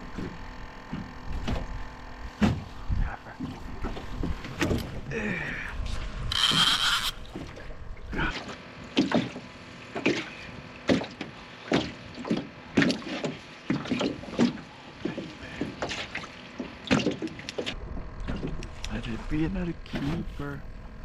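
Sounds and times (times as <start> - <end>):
water slapping against boat hull: 7.2 - 18.9.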